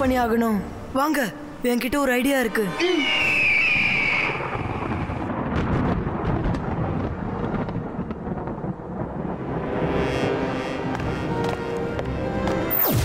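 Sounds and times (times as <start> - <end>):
high falling tone: 2.2 - 5.3
rolling thunder rumble: 3.2 - 11.4.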